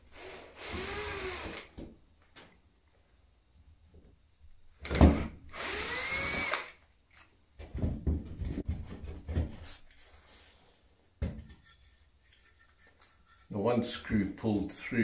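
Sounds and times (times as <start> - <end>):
cordless drill running: 0.1 - 1.7, 4.8 - 6.8
knocks and scraping: 7.6 - 10.5, 11.1 - 14.1.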